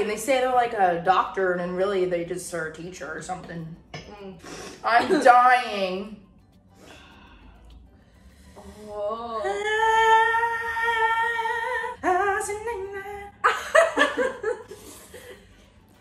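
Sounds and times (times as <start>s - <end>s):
woman laughing: 13.4s - 15.4s.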